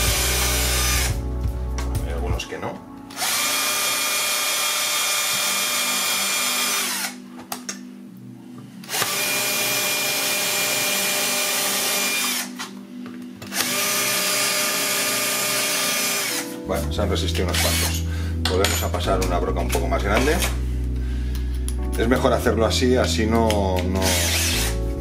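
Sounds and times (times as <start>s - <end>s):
cordless drill drilling plastic: 0.0s - 1.2s, 3.1s - 7.2s, 8.9s - 12.7s, 13.5s - 16.4s, 17.5s - 18.0s, 24.0s - 24.8s.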